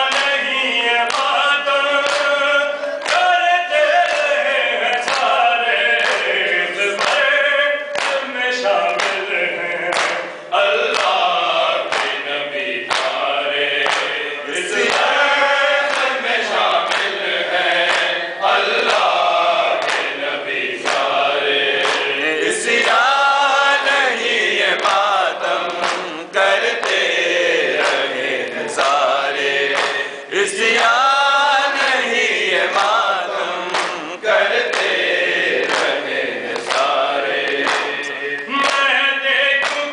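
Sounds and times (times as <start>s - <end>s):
men chanting in unison: 0.0s - 39.9s
hands slapping chests: 11.9s - 12.2s, 12.9s - 14.2s, 20.8s - 21.1s, 25.7s - 27.2s, 29.7s - 30.1s, 33.6s - 38.9s.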